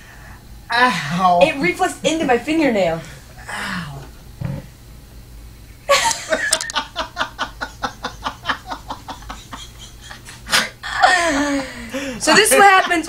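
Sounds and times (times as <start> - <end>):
person laughing hard: 5.9 - 13.0.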